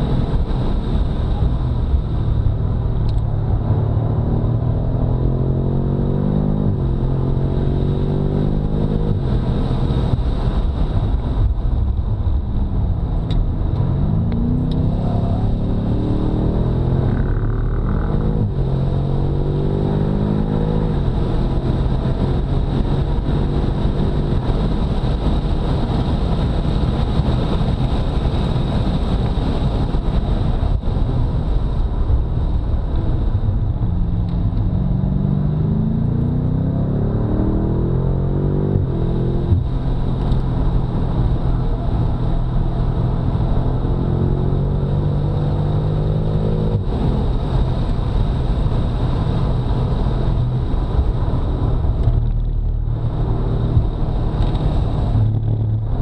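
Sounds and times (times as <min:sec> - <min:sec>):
car engine revving hard: 0:03.6 - 0:10.2, 0:13.8 - 0:24.8, 0:34.7 - 0:56.0.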